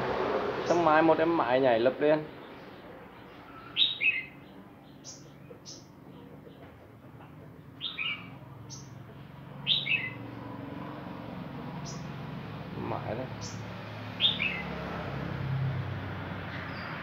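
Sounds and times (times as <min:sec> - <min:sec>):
bird chirping high: 0:02.3 - 0:06.7, 0:07.6 - 0:09.0, 0:09.6 - 0:10.4, 0:11.8 - 0:12.2, 0:13.2 - 0:14.8.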